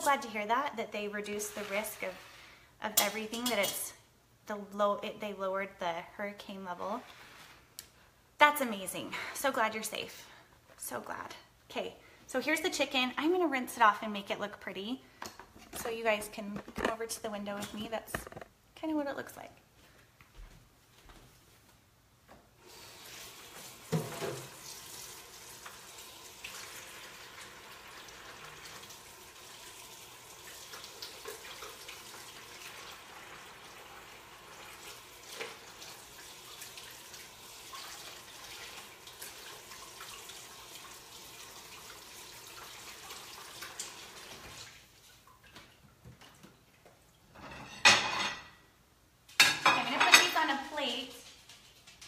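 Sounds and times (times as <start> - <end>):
faucet running into sink: 22.6 - 44.8.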